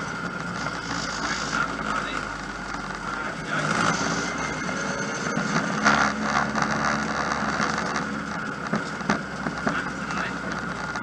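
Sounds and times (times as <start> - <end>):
car engine running: 0.0 - 11.0
tyre and road noise: 0.0 - 11.0.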